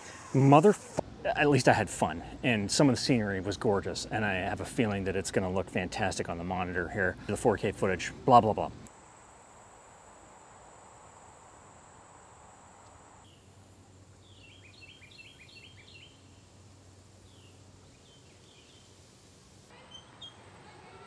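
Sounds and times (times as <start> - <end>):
high insect buzz: 8.9 - 19.7
birds chirping: 14.2 - 16.5.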